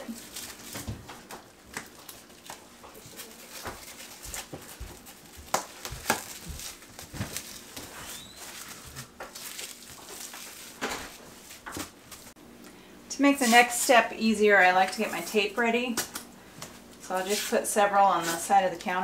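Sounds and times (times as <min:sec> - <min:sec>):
plastic wrap rustling: 0:00.0 - 0:12.4.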